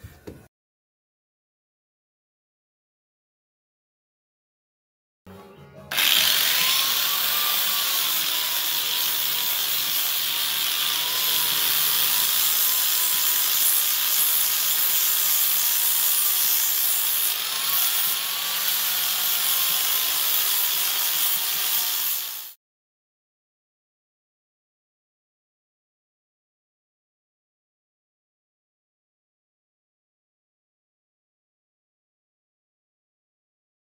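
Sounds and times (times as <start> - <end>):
angle grinder sanding wood: 5.9 - 22.6.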